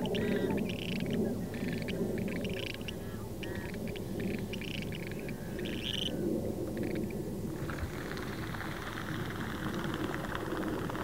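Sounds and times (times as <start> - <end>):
grebes calling: 0.0 - 6.2
low background rumble: 0.0 - 11.0.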